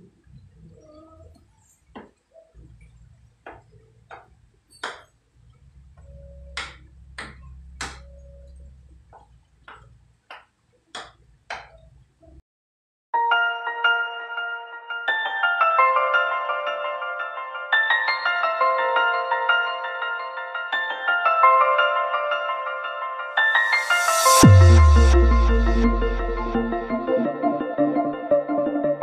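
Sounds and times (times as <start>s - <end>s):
chime-like music: 13.2s - 28.5s.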